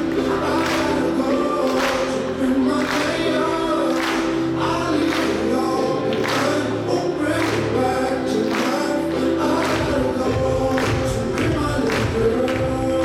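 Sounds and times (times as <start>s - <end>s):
music with singing: 0.0s - 13.0s.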